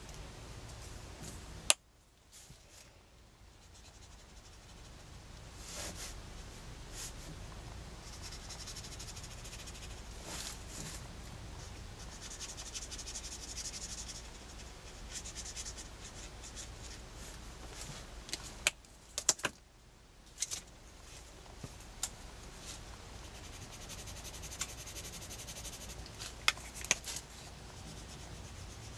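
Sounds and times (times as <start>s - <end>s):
marker scratching on paper: 8.0s - 10.0s, 11.6s - 17.0s, 23.2s - 28.9s.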